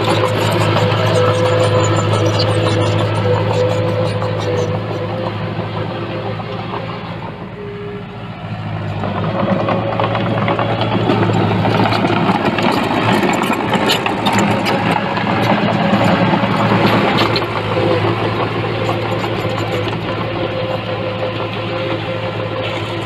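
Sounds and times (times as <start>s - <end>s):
diesel engine running: 0.0s - 23.0s
light rattling and clanking: 9.0s - 20.2s.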